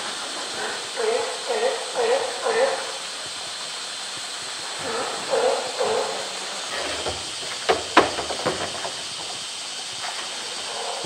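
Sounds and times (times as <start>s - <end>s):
steady hiss: 0.0s - 11.0s
plastic drum knocking on concrete: 7.0s - 9.3s.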